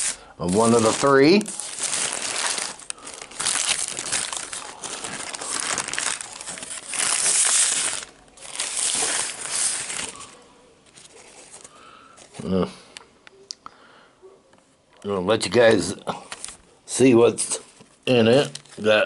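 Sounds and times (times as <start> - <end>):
paper wrapper rustling: 0.0 - 12.4.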